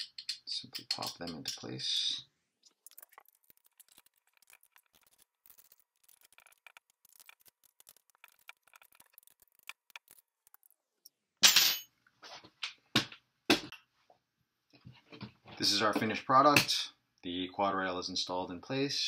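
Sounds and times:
allen key clicking and scratching: 0:02.9 - 0:10.7.

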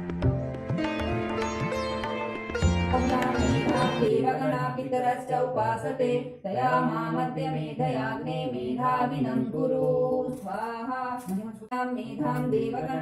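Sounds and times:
group chanting in unison: 0:03.6 - 0:10.3.

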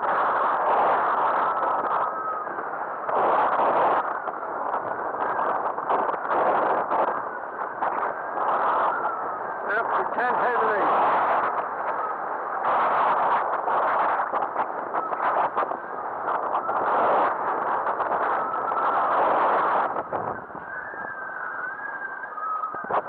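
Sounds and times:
wind buffeting microphone: 0:00.0 - 0:23.0
faint high whistle: 0:20.6 - 0:23.0.

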